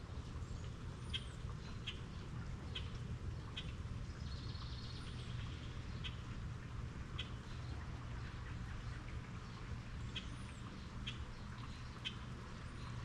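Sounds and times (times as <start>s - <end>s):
steady rain: 0.0s - 13.0s
bird chirping: 1.0s - 2.1s.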